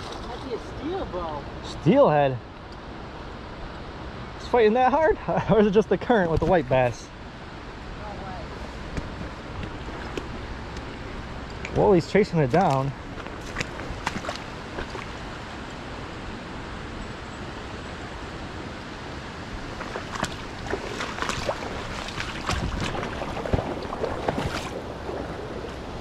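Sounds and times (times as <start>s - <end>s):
river rushing: 7.6s - 26.0s.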